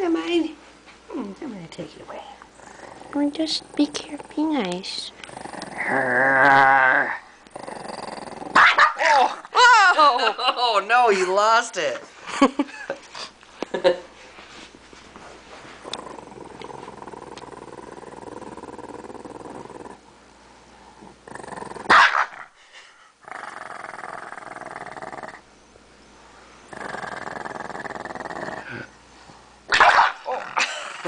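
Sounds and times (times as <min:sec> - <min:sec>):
dog growling: 0:02.5 - 0:09.5, 0:15.8 - 0:20.0, 0:21.0 - 0:22.4, 0:23.2 - 0:25.5, 0:26.7 - 0:29.0.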